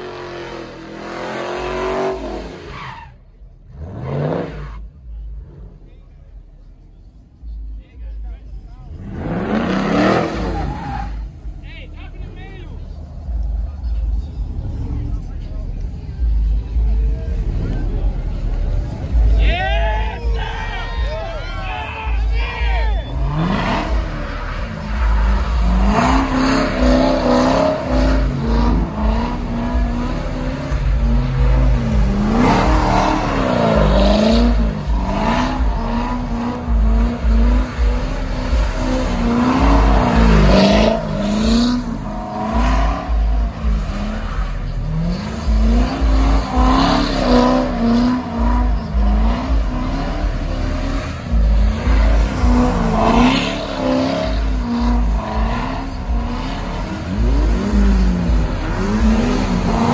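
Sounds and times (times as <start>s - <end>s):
car engine revving high: 0.0s - 6.1s, 8.4s - 59.9s.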